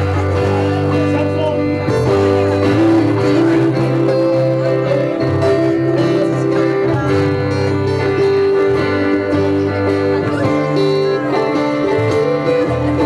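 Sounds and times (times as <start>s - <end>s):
acoustic guitars strumming: 0.0s - 13.0s
held guitar notes: 0.0s - 13.0s.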